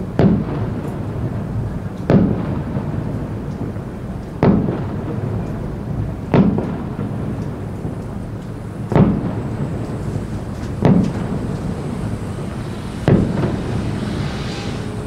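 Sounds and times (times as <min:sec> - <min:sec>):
firework shells booming: 0:00.0 - 0:15.0
low rumble: 0:08.5 - 0:15.0.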